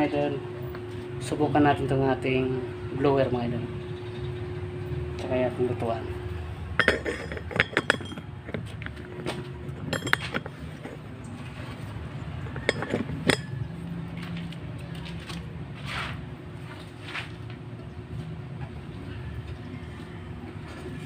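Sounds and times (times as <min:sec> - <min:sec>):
metal clinks and clanks: 0:06.8 - 0:11.0, 0:12.4 - 0:13.7.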